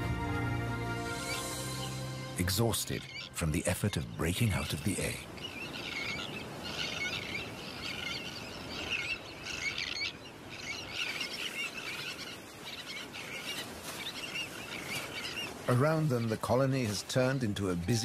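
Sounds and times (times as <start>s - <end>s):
terns calling shrilly: 1.0s - 3.6s, 5.3s - 16.4s.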